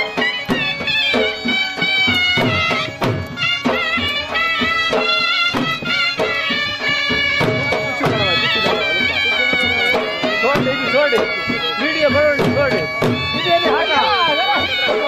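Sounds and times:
drum beats: 0.0s - 15.0s
reedy wind instrument melody: 0.0s - 15.0s.

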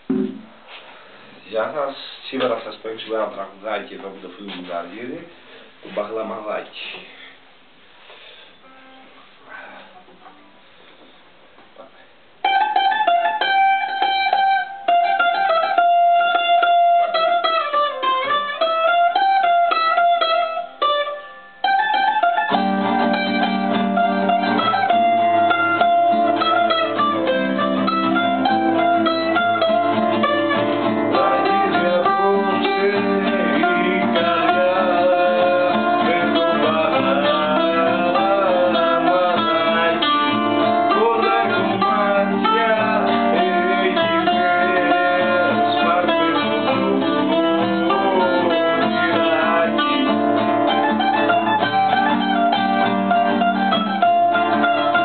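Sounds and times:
plucked strings instrumental: 0.0s - 0.5s, 12.4s - 55.0s
high plucked melody: 12.4s - 55.0s.

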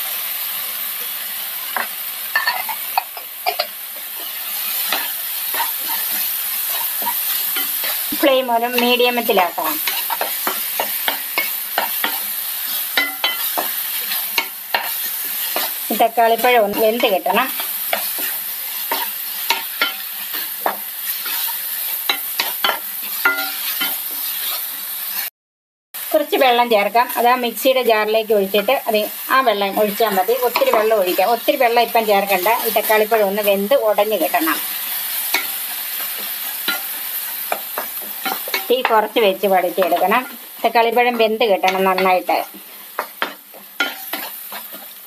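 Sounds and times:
tomatoes sizzling in a pan: 0.0s - 25.3s, 26.0s - 45.0s
spatula scraping a pan: 1.7s - 25.3s, 34.2s - 39.0s, 39.8s - 45.0s
wooden spatula scraping a pan: 16.4s - 24.7s, 41.0s - 45.0s.

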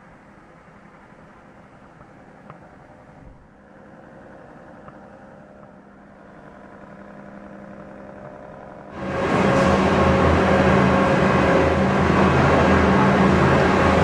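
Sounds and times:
sanding machine humming: 3.6s - 14.0s.

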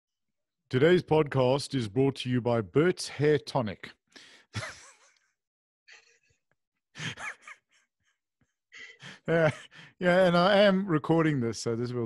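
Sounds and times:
men laughing quietly: 4.6s - 5.2s, 7.0s - 7.7s.

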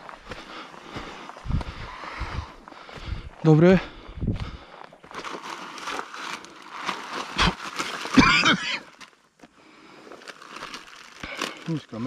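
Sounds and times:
man coughing and spluttering: 7.3s - 9.0s.

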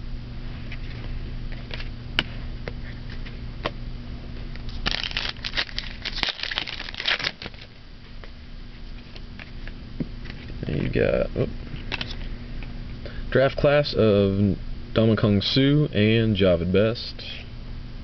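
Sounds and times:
low steady hum: 0.0s - 18.0s
cards crinkling and rustling: 4.6s - 7.8s, 11.8s - 12.3s.

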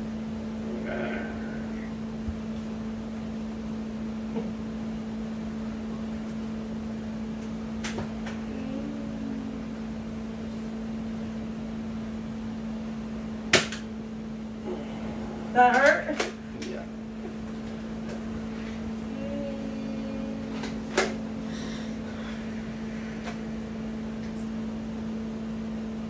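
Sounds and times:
low room hum: 0.0s - 26.0s.

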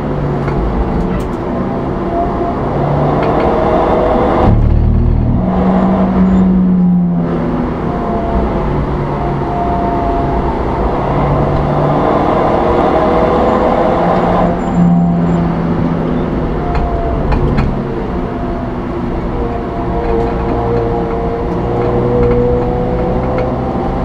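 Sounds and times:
car engine running: 0.0s - 24.0s
road and tyre noise: 0.0s - 24.0s.

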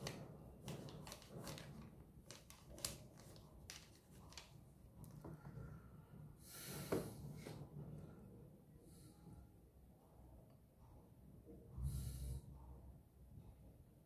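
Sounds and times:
paper rustle: 0.0s - 4.6s.

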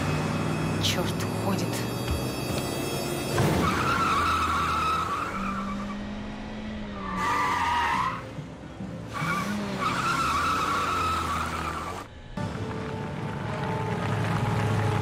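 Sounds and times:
car tyres squealing: 2.2s - 12.1s.

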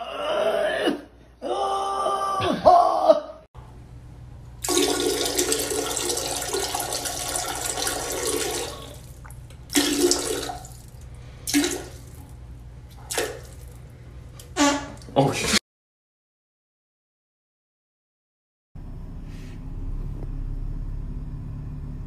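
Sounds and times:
toilet flushing: 4.6s - 12.3s.

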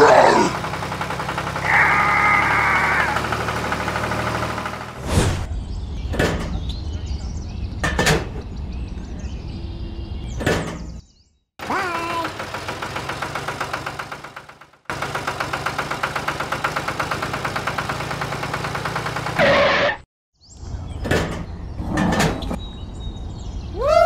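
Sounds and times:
miniature tractor engine chugging: 0.2s - 5.0s, 11.6s - 19.4s.

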